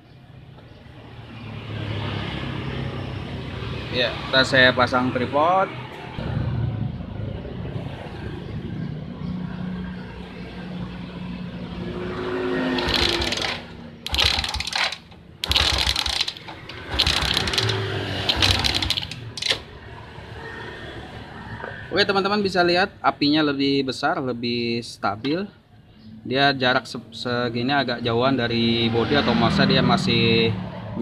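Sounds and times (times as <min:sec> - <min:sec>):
engine cranking: 0:12.8 - 0:19.7.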